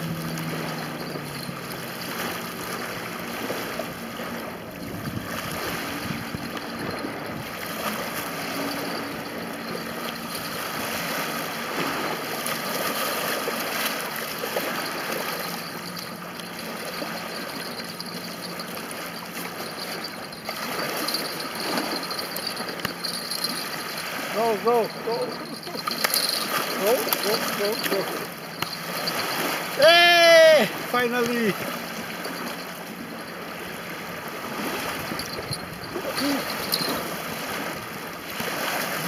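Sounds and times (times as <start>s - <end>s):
small waves lapping on shore: 0.0s - 39.0s.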